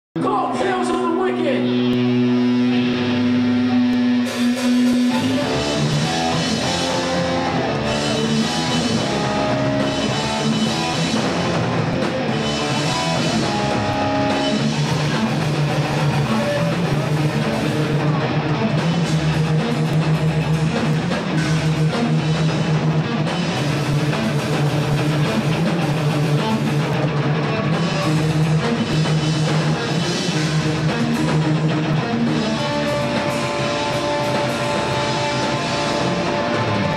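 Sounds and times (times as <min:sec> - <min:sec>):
metal band playing live: 0:00.2 - 0:36.9.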